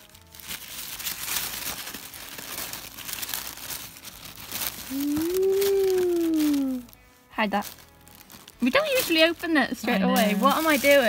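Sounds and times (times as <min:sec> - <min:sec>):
tissue paper crinkling: 0:00.0 - 0:11.0
person saying ooh: 0:04.9 - 0:06.9.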